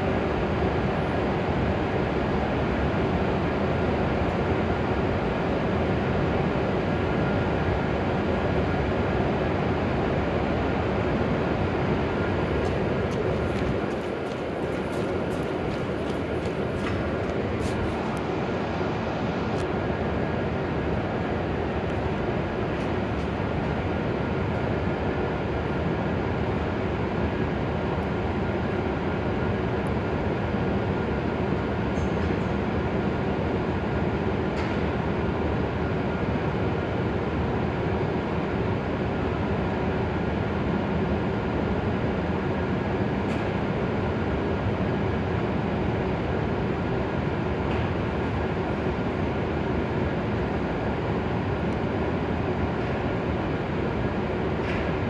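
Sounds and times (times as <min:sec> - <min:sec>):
train equipment running steadily: 0:00.0 - 0:55.0
train equipment running: 0:10.4 - 0:24.7.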